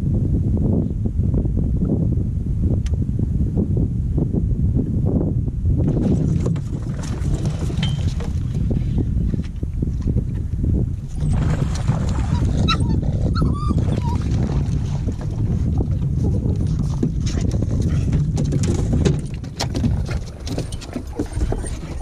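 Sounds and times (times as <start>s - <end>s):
wind rumble on microphone: 0.0s - 22.0s
small dog yipping: 12.2s - 14.2s.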